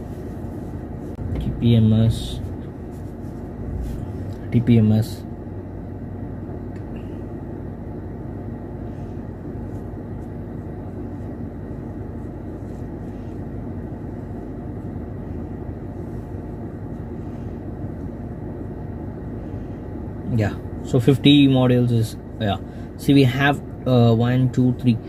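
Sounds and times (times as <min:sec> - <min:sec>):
car engine idling: 0:00.0 - 0:09.9.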